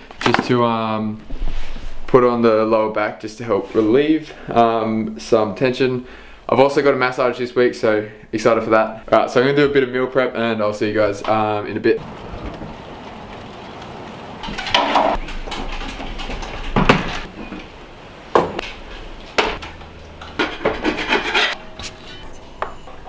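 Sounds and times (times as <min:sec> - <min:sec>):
scraping: 0:12.0 - 0:23.0.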